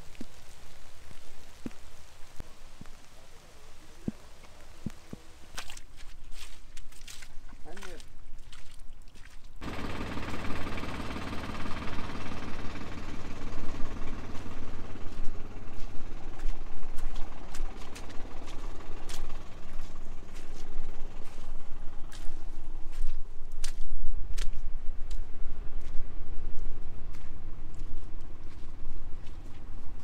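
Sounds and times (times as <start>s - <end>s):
truck engine droning: 9.6s - 23.6s.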